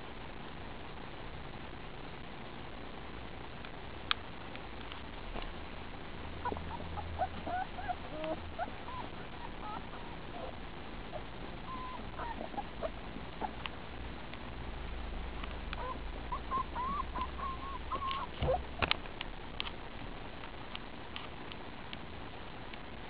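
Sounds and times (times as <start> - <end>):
puppies whimpering: 6.4 - 13.6, 15.8 - 18.8.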